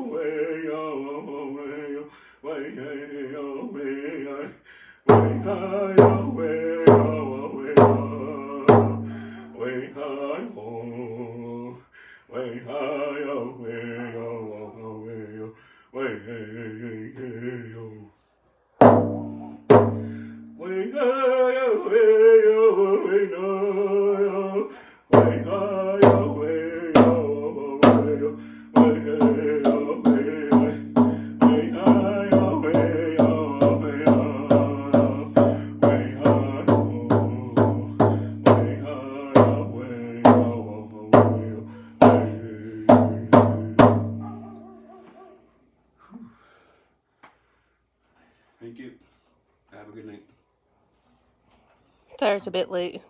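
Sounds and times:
man singing: 0.0s - 18.2s, 19.1s - 44.6s
hand drum beating: 18.8s - 20.1s, 41.2s - 44.5s.

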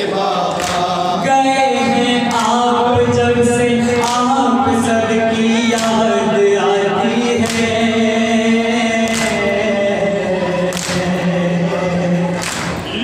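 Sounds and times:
men chanting a lament: 0.0s - 13.0s.

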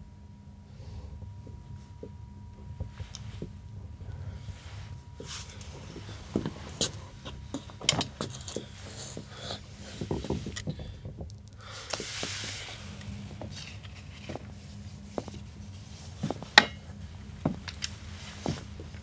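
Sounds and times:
steady low hum: 0.0s - 19.0s
person shuffling and sitting down: 0.8s - 19.0s
clothing rustling: 2.7s - 11.0s, 11.7s - 19.0s.

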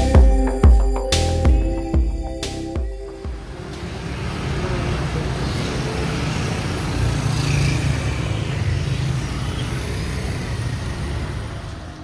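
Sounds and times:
scooters and cars passing: 3.1s - 12.0s.

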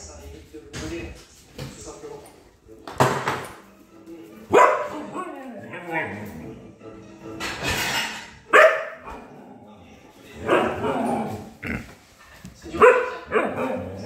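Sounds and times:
dog barking and vocalizing: 10.4s - 11.3s, 12.7s - 14.0s.

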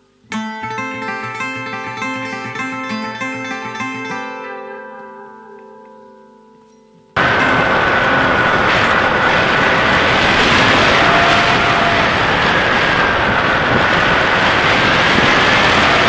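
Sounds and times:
air rush: 7.2s - 16.0s
electric motor whining: 7.2s - 16.0s.

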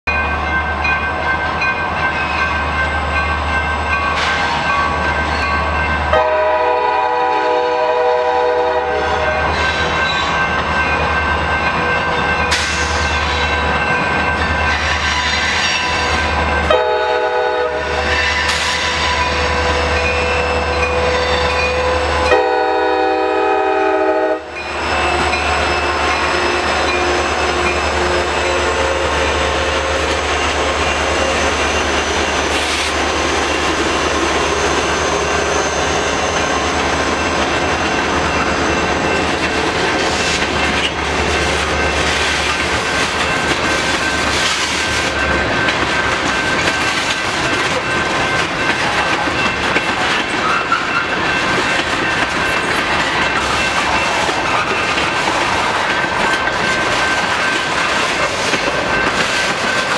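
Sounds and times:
crossing bell ringing: 0.0s - 59.9s
train rumbling: 0.1s - 59.9s
locomotive air horn blasts: 6.1s - 9.4s, 16.7s - 25.4s.

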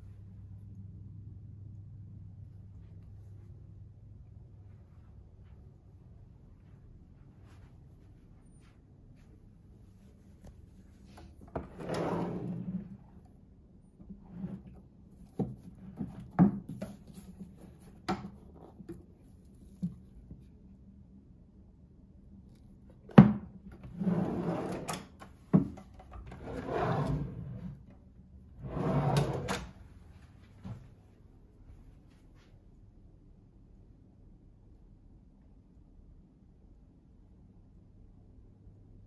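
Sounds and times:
drawers sliding open and shut: 11.2s - 13.2s, 14.2s - 14.8s, 23.1s - 27.8s, 28.6s - 29.8s.

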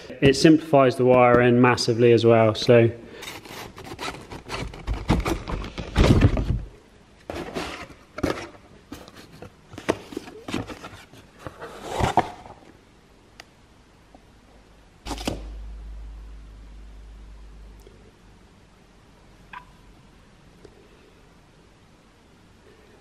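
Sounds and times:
cardboard box rustling and scraping: 3.4s - 6.6s, 7.3s - 12.6s
low steady hum: 8.2s - 23.0s.

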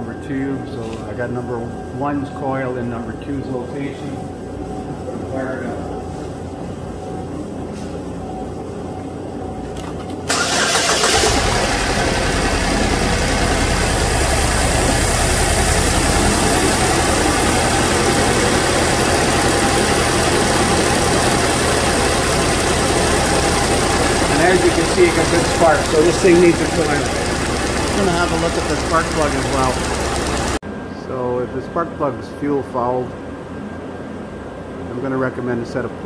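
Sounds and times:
car engine cranking and starting: 10.3s - 30.6s
car engine idling: 10.3s - 30.6s.

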